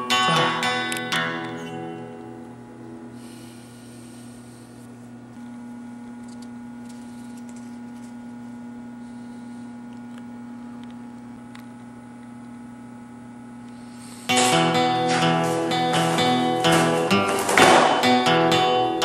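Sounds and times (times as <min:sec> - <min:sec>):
low electrical hum: 0:00.0 - 0:19.0
paper rustling: 0:14.4 - 0:18.1.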